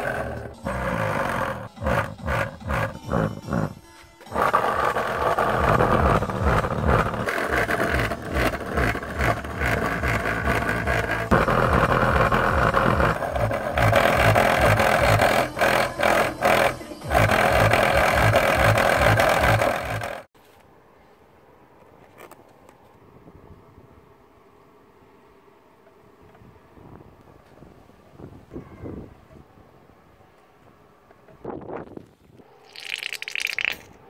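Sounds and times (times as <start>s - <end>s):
music with pounding bass beat: 0.3s - 20.2s.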